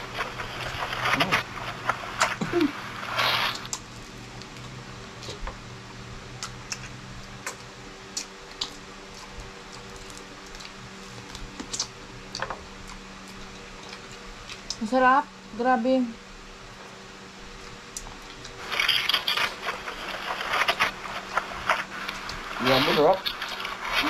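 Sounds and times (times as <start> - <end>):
rustling: 0.0 - 3.7, 18.6 - 24.0
people chewing with wet clicks: 6.3 - 14.8, 17.5 - 19.8.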